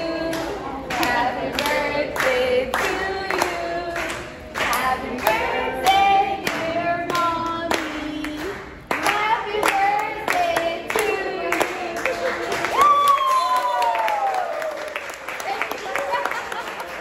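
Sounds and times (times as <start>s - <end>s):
voices singing together: 0.0s - 12.8s
hand claps: 0.3s - 17.0s.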